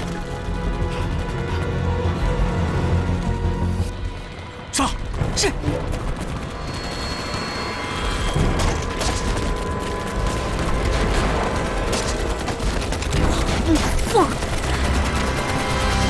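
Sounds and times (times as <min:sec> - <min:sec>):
rifle and machine-gun shots: 0:05.0 - 0:16.0.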